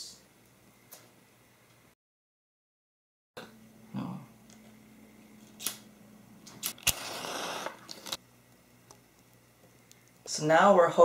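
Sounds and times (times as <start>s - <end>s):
match head flaring hiss: 6.6s - 8.2s
match scraping on striker: 6.6s - 8.2s.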